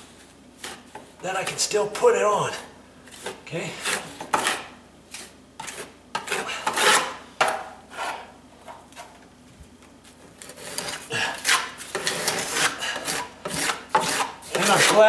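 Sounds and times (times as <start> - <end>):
putty knife scraping on wall: 3.1 - 7.2, 7.9 - 8.3, 10.4 - 15.0.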